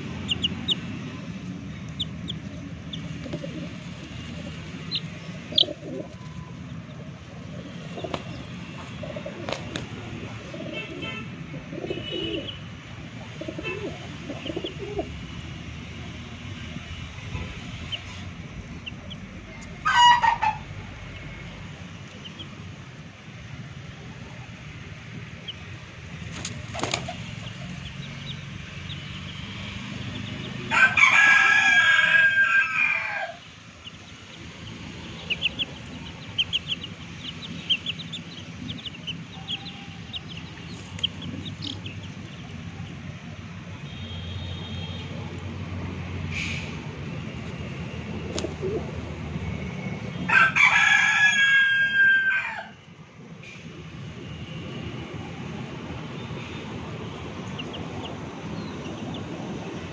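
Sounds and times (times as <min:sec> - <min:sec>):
chicks cheeping: 0:00.0 - 0:11.1, 0:11.7 - 0:12.6, 0:13.2 - 0:15.3, 0:17.2 - 0:22.9, 0:25.3 - 0:45.5, 0:55.0 - 0:59.9
rooster crowing: 0:19.8 - 0:20.7, 0:30.2 - 0:33.5, 0:38.8 - 0:40.4, 0:50.2 - 0:52.9.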